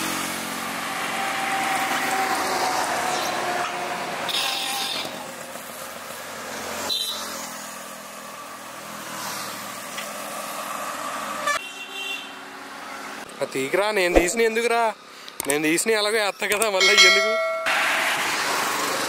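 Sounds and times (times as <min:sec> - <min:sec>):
passing road traffic: 0:00.0 - 0:11.6, 0:12.3 - 0:13.4, 0:17.0 - 0:19.0.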